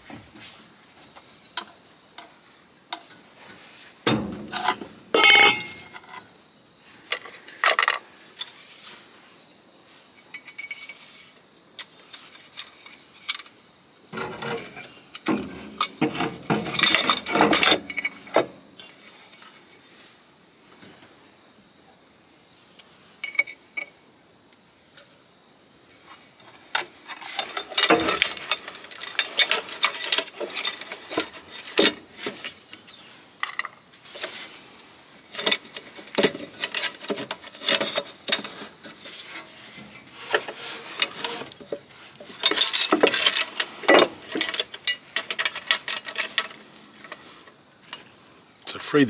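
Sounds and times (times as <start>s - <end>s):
metal parts clinking and scraping: 4.3s - 6.3s, 10.2s - 13.5s, 14.2s - 19.8s, 23.2s - 24.0s, 26.1s - 48.0s.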